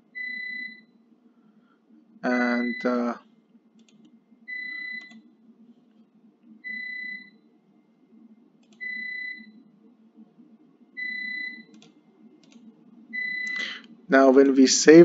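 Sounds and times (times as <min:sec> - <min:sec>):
soft clicks: 0:03.8 - 0:04.2, 0:08.6 - 0:08.9, 0:11.6 - 0:12.7
high electronic beeps: 0:04.4 - 0:05.2, 0:06.6 - 0:07.4, 0:11.0 - 0:11.7, 0:13.1 - 0:13.8.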